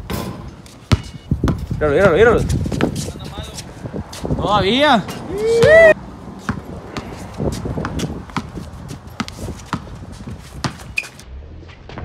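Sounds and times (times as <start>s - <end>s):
sneakers scuffing: 0.3s - 11.2s
basketball dribbling on concrete: 0.9s - 3.2s, 6.4s - 11.2s.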